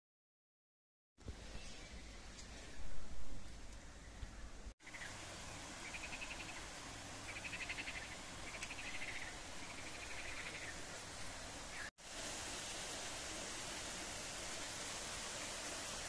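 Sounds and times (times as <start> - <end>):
flowing water rushing: 4.8 - 16.0.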